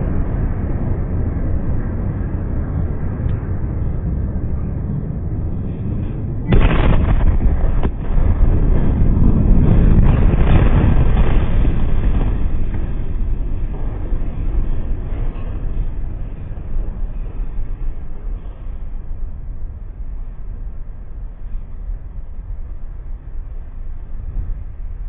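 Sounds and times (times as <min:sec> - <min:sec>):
loud explosion boom: 0:00.0 - 0:17.2
low rumble: 0:00.0 - 0:25.0
sharp crack: 0:06.5 - 0:16.0.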